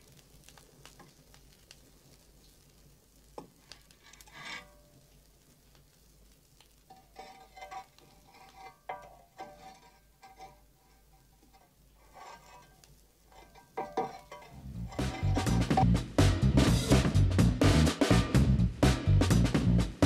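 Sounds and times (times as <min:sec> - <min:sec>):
coal shovel scraping and clanking: 0:03.8 - 0:05.0, 0:06.9 - 0:15.9.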